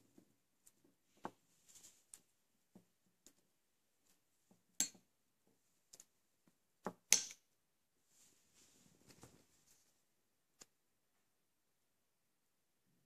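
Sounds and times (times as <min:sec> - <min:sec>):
soft rustle: 0:00.0 - 0:02.4, 0:08.0 - 0:10.1.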